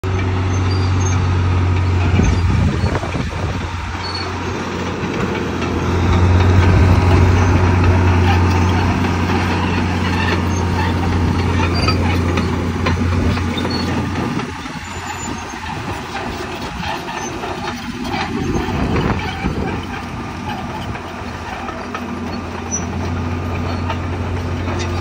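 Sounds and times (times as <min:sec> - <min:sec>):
bulldozer diesel engine droning: 0:00.0 - 0:25.0.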